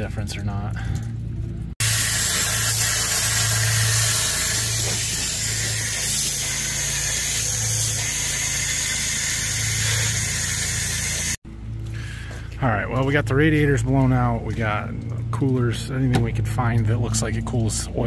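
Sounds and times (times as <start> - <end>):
steady low hum: 0.0 - 18.0
water spray nozzle hissing: 1.8 - 11.4.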